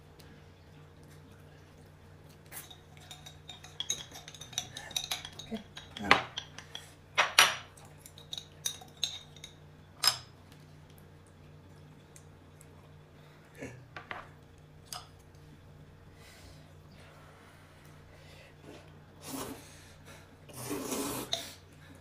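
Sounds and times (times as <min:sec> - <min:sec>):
utensils clinking against dishes: 0:02.5 - 0:10.3.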